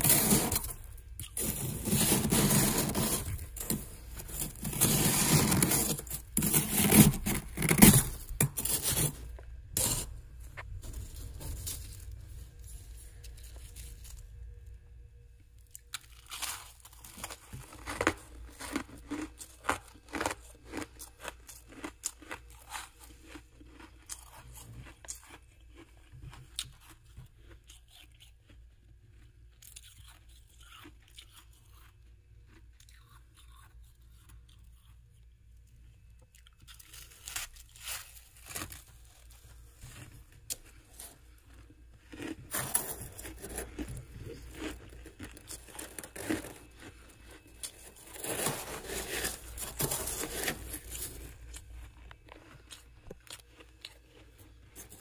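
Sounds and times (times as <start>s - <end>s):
metal spoon digging frost: 0.0s - 10.1s, 47.6s - 51.4s
crunching frost being chewed: 0.0s - 14.8s, 15.5s - 55.0s.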